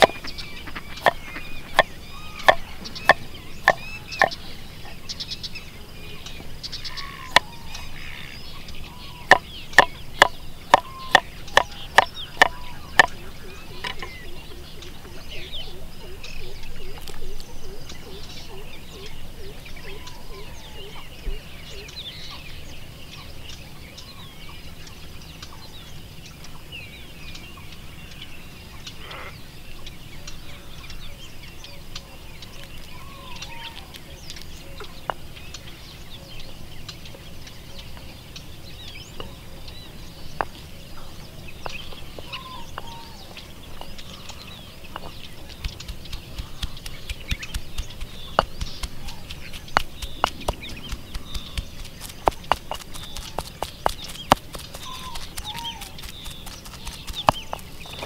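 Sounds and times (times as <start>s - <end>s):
hens clucking: 0.0s - 5.1s, 6.4s - 21.0s, 41.9s - 58.0s
small birds chirping: 0.0s - 58.0s
light taps: 45.0s - 58.0s.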